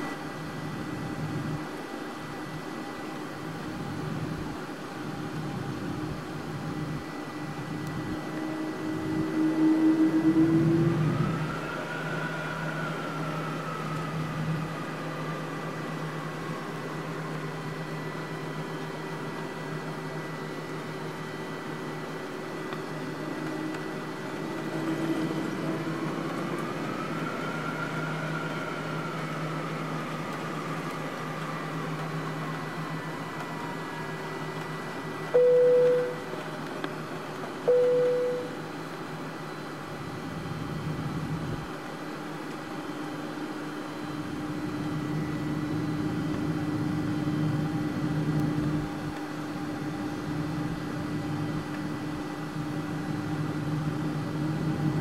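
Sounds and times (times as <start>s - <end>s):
jet engine drone: 0.0s - 55.0s
jet whine: 0.0s - 55.0s
loud single-pitch tones: 8.3s - 12.2s, 35.3s - 36.3s, 37.7s - 38.6s.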